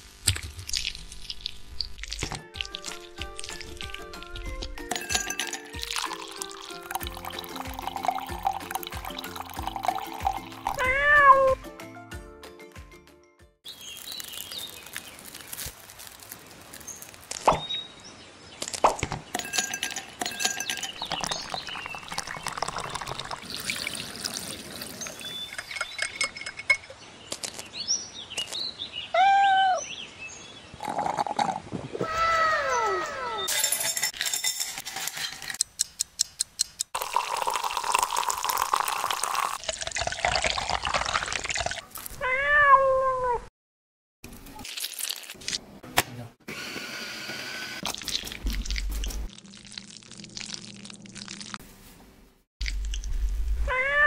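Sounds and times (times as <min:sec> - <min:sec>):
drink pouring over ice: 0:00.7 - 0:10.8, 0:19.4 - 0:26.6, 0:37.0 - 0:41.8
ice clinking in glass: 0:04.9 - 0:10.8, 0:19.3 - 0:27.0, 0:33.5 - 0:35.6, 0:37.0 - 0:41.8
cat meowing: 0:10.8 - 0:11.6, 0:29.1 - 0:29.8, 0:42.2 - 0:43.4, 0:53.7 - 0:54.0.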